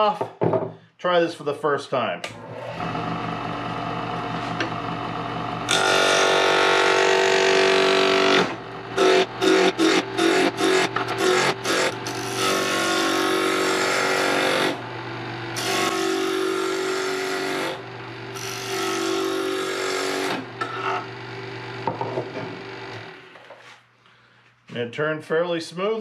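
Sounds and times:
lathe motor hum: 0:02.3 - 0:23.4
turning tool knocking on wood: 0:21.8 - 0:22.6.

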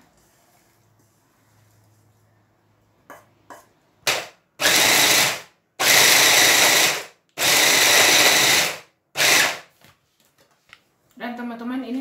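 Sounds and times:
hand blender grinding: 0:04.1 - 0:09.6.

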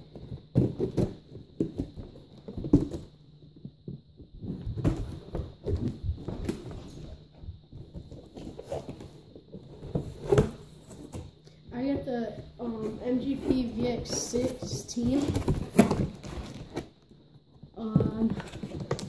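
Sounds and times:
cardboard box rustling: 0:12.8 - 0:17.0.

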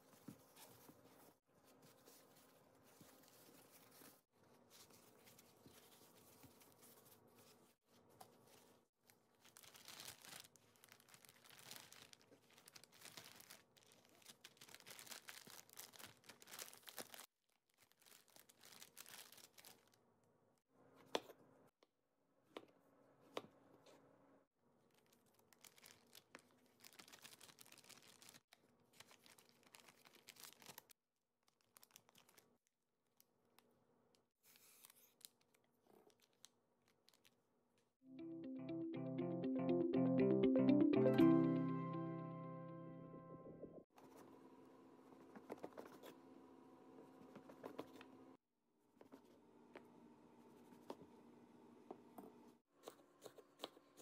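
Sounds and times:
paper and plastic bag rustling: 0:00.0 - 0:20.0.

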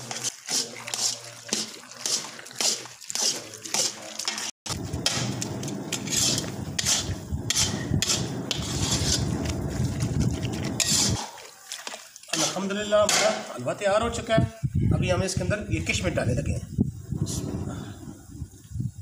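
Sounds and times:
metal spatula scraping a pan: 0:00.0 - 0:09.4, 0:10.7 - 0:11.4
low rumble: 0:04.7 - 0:11.2.

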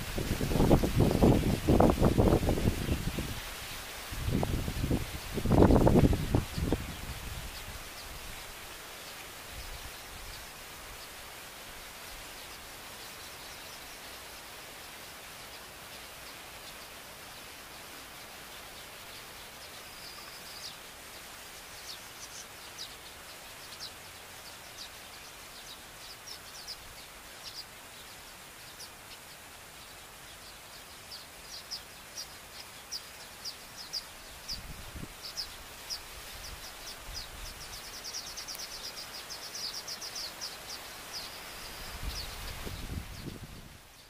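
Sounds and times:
background hiss: 0:00.0 - 0:44.0
bird chirping and trilling: 0:21.8 - 0:44.0.

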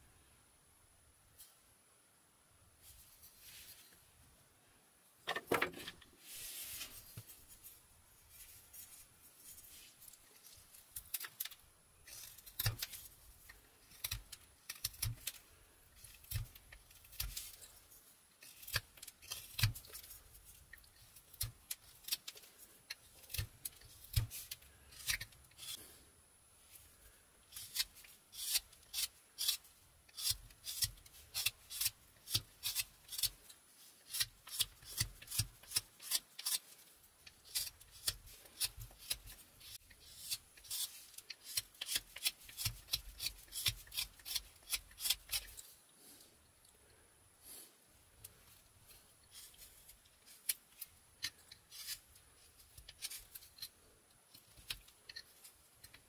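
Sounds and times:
knife carving wood: 0:10.4 - 0:25.9, 0:27.5 - 0:45.8, 0:48.2 - 0:56.0.

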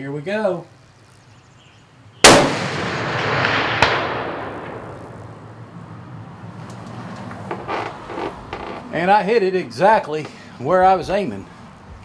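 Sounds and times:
rifle shot: 0:02.2 - 0:05.4.

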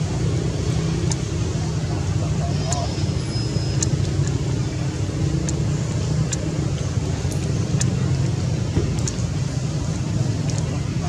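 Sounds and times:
low engine rumble: 0:00.0 - 0:11.0
faint high ticks: 0:01.0 - 0:01.3, 0:03.6 - 0:04.4, 0:05.4 - 0:08.2, 0:08.9 - 0:09.3, 0:10.4 - 0:10.7.

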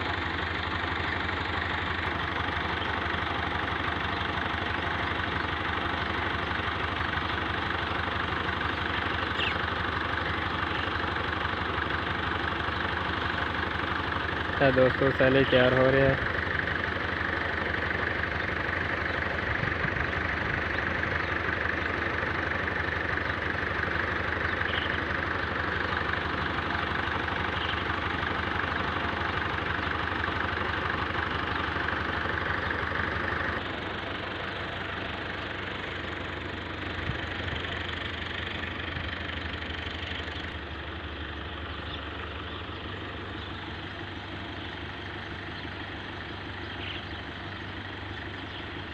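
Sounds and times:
tractor engine idling: 0:00.0 - 0:48.9.

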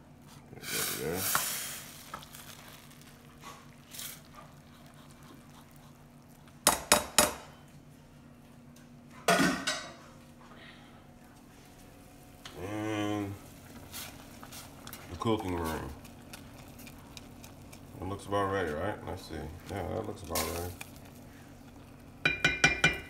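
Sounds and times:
liquid pouring into bowl: 0:01.2 - 0:06.7
cookware clatter: 0:22.2 - 0:23.0
metal clinking on bowl: 0:22.2 - 0:23.0.

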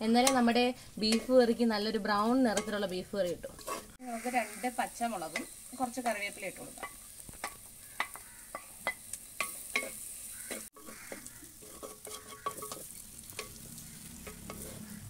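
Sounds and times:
food sizzling in oil: 0:00.0 - 0:15.0
wooden spoon knocking pot: 0:06.8 - 0:13.6.

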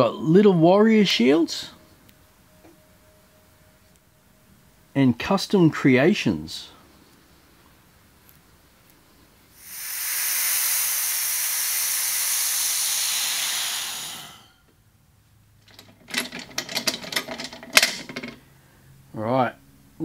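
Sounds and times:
compressed air hissing: 0:09.5 - 0:14.7
metallic clicks and clinks: 0:15.6 - 0:18.4.

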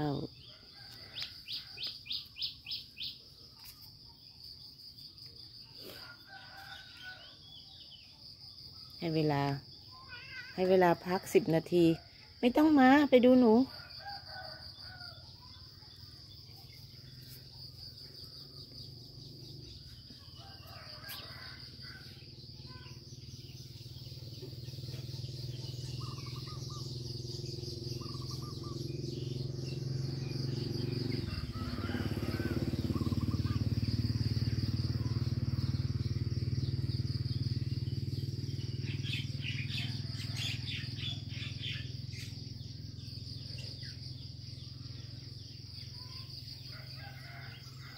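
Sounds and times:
insect drone: 0:00.0 - 0:47.9
bird chirps: 0:01.1 - 0:03.9, 0:22.1 - 0:31.6, 0:32.7 - 0:34.2.

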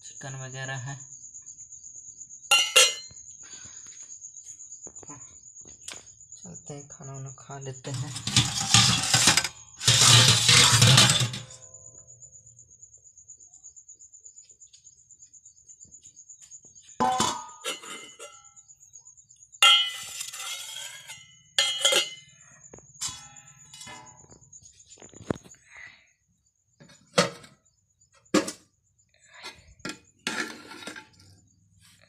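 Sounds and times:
metal dishes clinking: 0:02.5 - 0:03.1, 0:07.9 - 0:11.6, 0:17.0 - 0:18.5, 0:19.6 - 0:22.3, 0:23.0 - 0:24.3.

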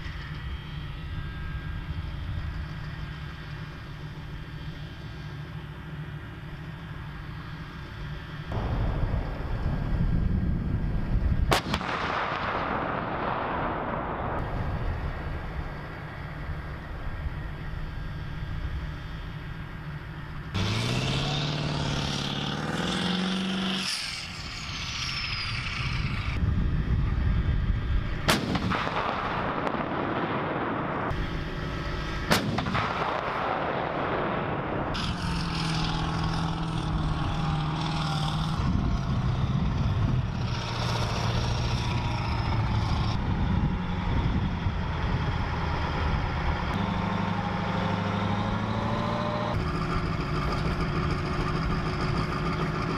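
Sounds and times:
heavy engine running: 0:00.0 - 0:52.9
howitzer firing with rumbling echo: 0:08.5 - 0:17.9, 0:27.5 - 0:35.4
tracked vehicle engine revving: 0:18.8 - 0:26.4, 0:34.8 - 0:52.9.

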